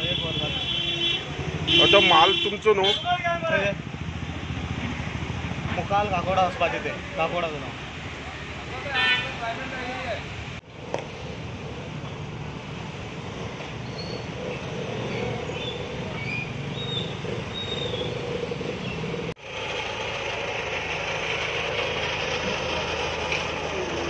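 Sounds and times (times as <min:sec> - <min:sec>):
motorcycles and cars passing: 0:00.0 - 0:24.0
diesel engine idling: 0:14.3 - 0:24.0.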